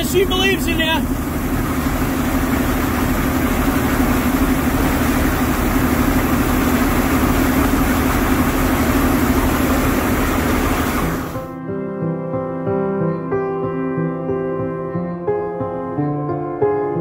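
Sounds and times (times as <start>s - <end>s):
tractor diesel engine idling: 0.0s - 11.5s.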